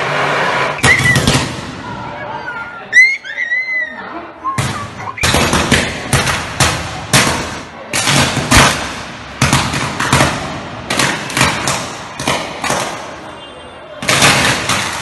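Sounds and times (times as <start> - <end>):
power cables arcing with bangs: 5.2 - 13.1.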